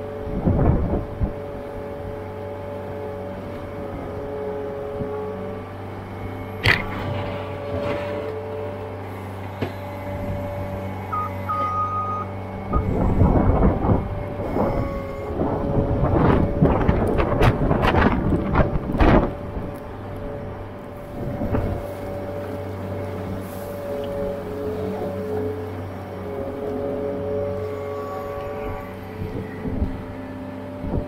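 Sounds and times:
skid loader engine running: 0.0 - 31.0
loader bucket clanking and rattling: 3.8 - 31.0.

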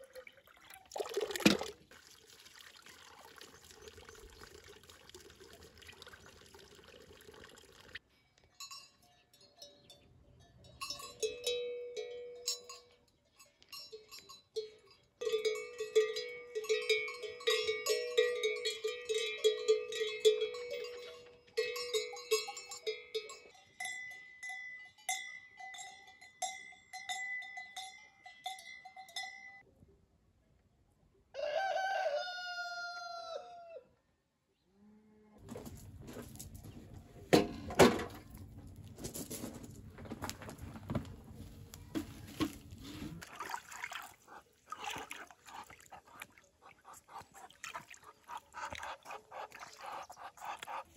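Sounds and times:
water trickling from spout: 0.0 - 8.0, 43.2 - 50.9
cowbells ringing: 8.5 - 29.7
rooster crowing: 31.3 - 33.9.

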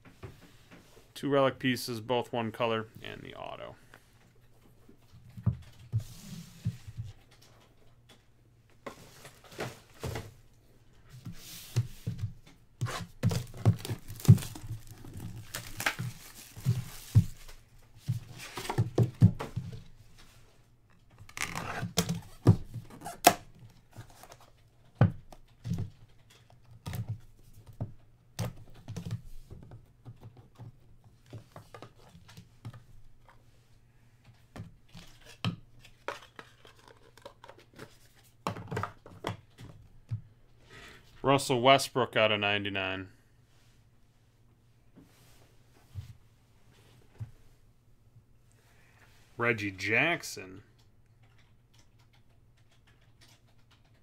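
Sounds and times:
wrapping tearing and crinkling: 13.3 - 17.5.

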